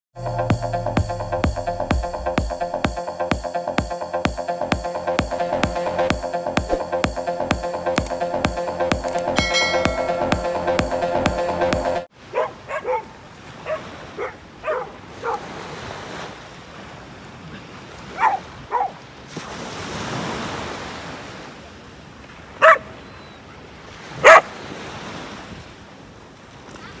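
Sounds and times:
small waves washing onto sand: 12.1s - 22.9s, 23.6s - 27.0s
dog barking: 12.2s - 15.5s, 18.1s - 19.0s, 22.6s - 23.0s, 24.2s - 24.5s.

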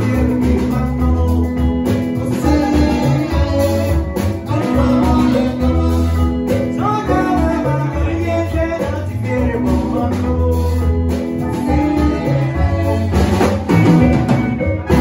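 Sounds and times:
congas: 0.0s - 15.0s
deep bass line: 0.0s - 15.0s
drum kit: 0.0s - 15.0s
electric guitar: 0.0s - 15.0s
horn section: 2.4s - 6.4s.

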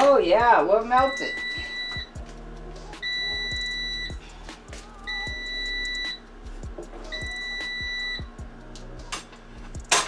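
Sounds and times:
high-pitched electronic beep: 1.0s - 2.1s, 3.0s - 4.2s, 5.1s - 6.2s, 7.1s - 8.3s.

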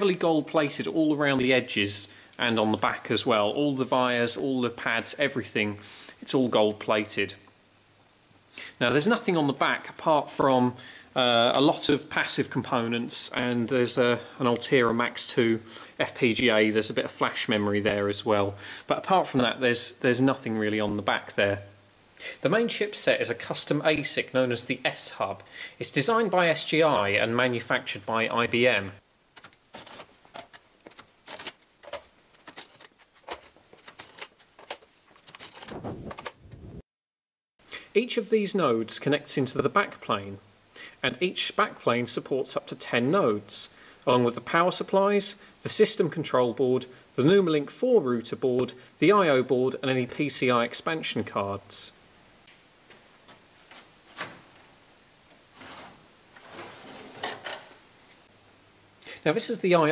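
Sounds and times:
metal board scraping and sliding: 55.5s - 57.8s.

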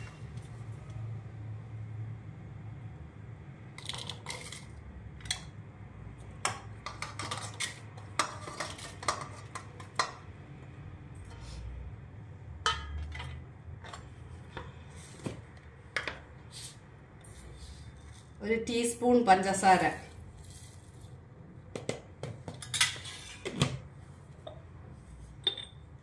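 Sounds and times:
clinks against steel dishes: 25.4s - 25.8s.

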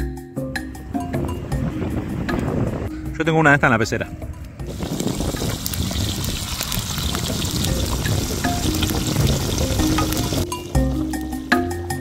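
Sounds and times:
light marimba-like music: 0.0s - 5.4s, 7.6s - 12.0s
wood fire crackling and popping: 4.7s - 11.4s.

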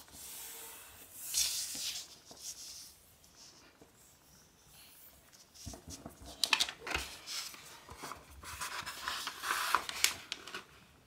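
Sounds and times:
paper rustling and crackling: 5.4s - 10.8s.

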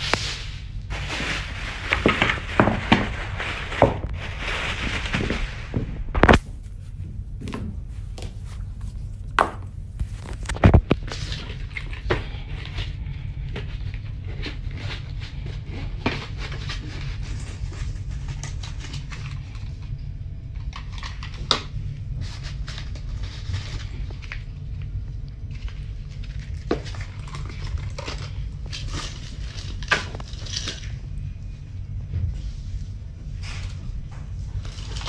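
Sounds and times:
bags rustling: 0.0s - 6.9s
steady low hum: 0.0s - 35.0s.

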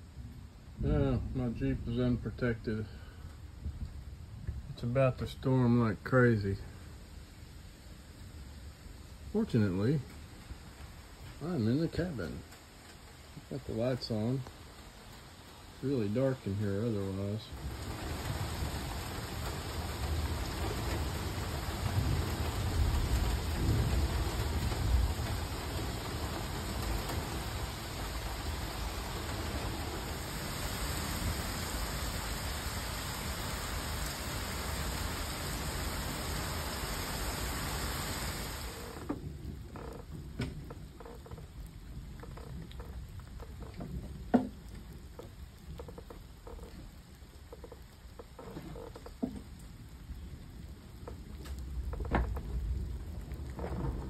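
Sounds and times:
heavy rain pouring: 0.0s - 54.0s
thunder rumbling: 17.4s - 37.7s, 51.6s - 54.0s
light knocks and clicks: 39.0s - 41.5s, 47.5s - 49.5s.

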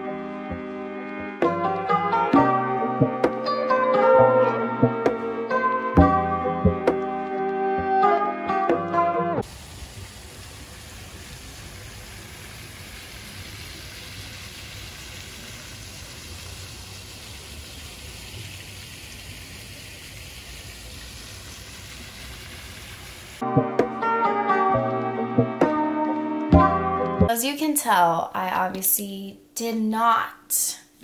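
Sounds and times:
fountain jets splashing into pool: 9.4s - 23.4s.

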